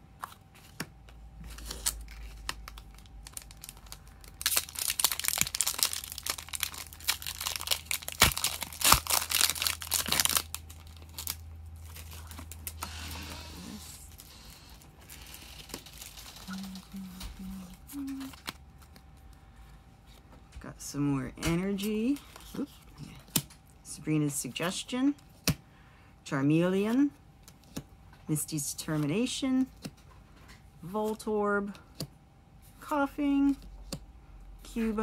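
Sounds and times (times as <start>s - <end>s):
foil wrapper crinkling and tearing: 1.5s - 12.9s, 14.0s - 19.2s.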